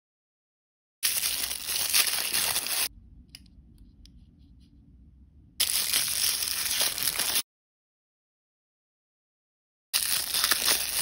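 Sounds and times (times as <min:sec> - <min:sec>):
paper wrapper crinkling: 0:01.0 - 0:02.9, 0:05.6 - 0:07.4, 0:10.0 - 0:11.0.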